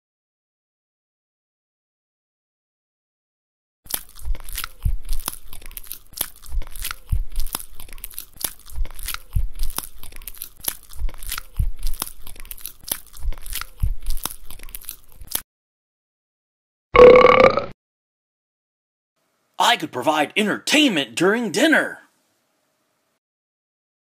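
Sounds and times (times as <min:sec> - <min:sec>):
dog chewing greens: 0:03.9 - 0:15.4.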